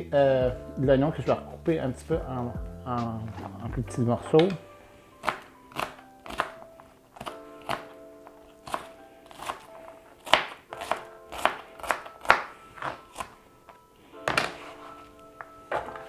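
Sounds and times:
background music with held notes: 0:00.0 - 0:16.0
knife chopping on cutting board: 0:05.2 - 0:06.6, 0:08.6 - 0:13.3.

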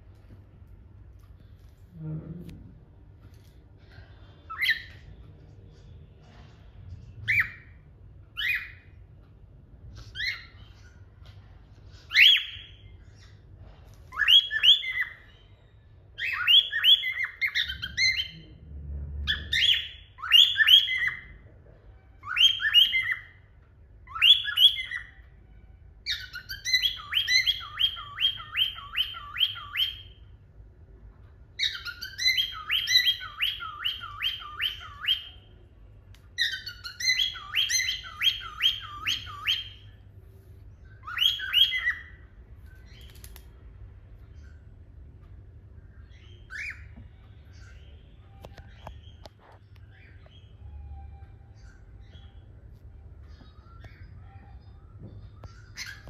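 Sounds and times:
cockatiel whistling and chirping: 0:04.5 - 0:05.1, 0:07.2 - 0:09.0, 0:09.9 - 0:18.5, 0:19.2 - 0:21.4, 0:22.2 - 0:30.2, 0:31.6 - 0:35.5, 0:36.3 - 0:40.0, 0:40.8 - 0:43.4, 0:46.0 - 0:56.0.

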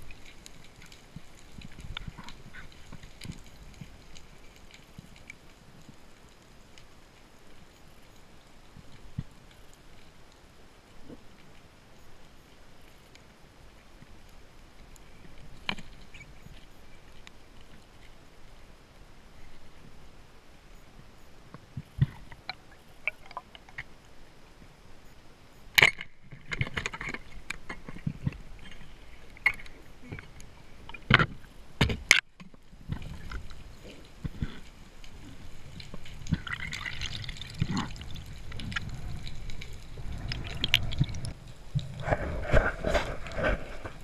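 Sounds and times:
sharp underwater clicks and knocks: 0:25.7 - 0:44.0
rush of moving water: 0:32.8 - 0:44.0.

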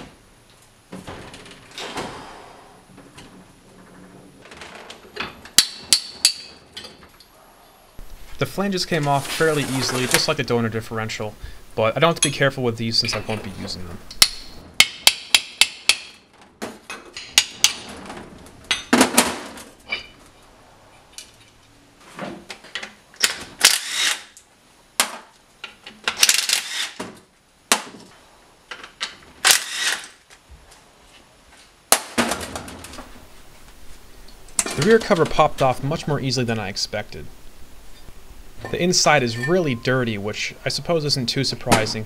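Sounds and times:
sharp metal taps: 0:14.1 - 0:16.2.

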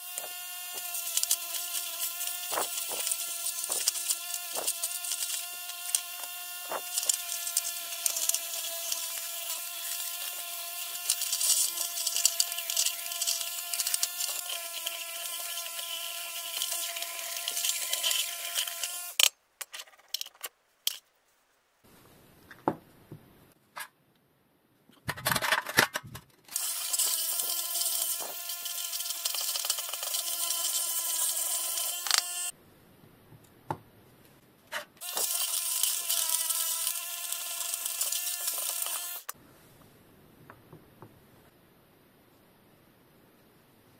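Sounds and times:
power tool motor buzzing: 0:00.0 - 0:19.3, 0:26.5 - 0:32.5, 0:35.0 - 0:39.4.

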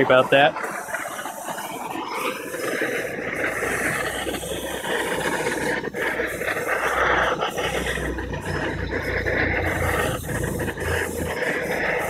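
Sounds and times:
gas torch flame hissing: 0:00.0 - 0:12.0
low rumble: 0:03.2 - 0:12.0.

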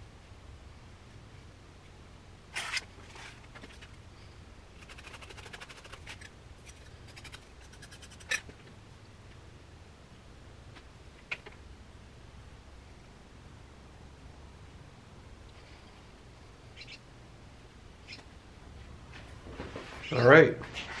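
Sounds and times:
hand tool scraping clay: 0:04.8 - 0:08.5.

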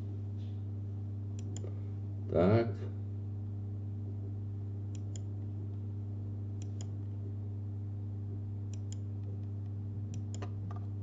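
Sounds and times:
steady low hum: 0:00.0 - 0:11.0
computer mouse clicking: 0:01.4 - 0:01.7, 0:04.9 - 0:05.3, 0:06.6 - 0:07.0, 0:08.7 - 0:09.5, 0:10.1 - 0:10.5.

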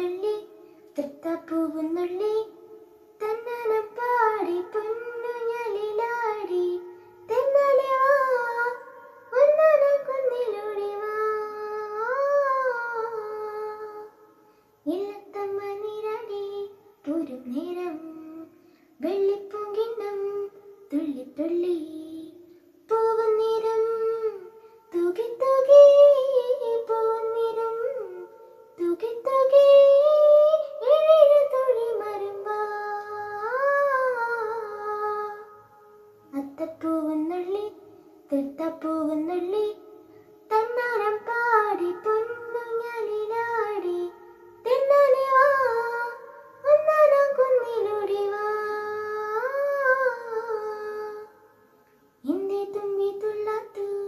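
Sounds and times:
child singing slowly: 0:00.0 - 0:51.4, 0:52.2 - 0:54.0.

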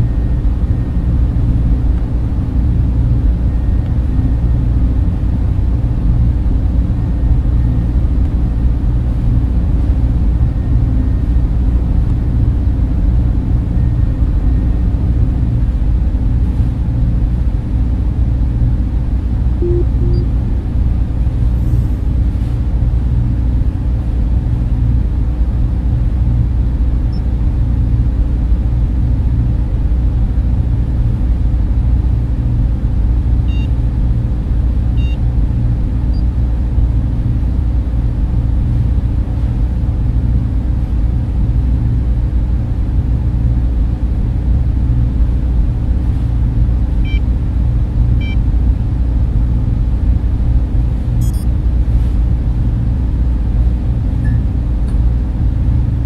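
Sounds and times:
deep machinery rumble and hum: 0:00.0 - 0:56.0
faint short beeps: 0:19.6 - 0:20.4, 0:35.0 - 0:35.2, 0:51.2 - 0:51.5, 0:54.2 - 0:54.5.

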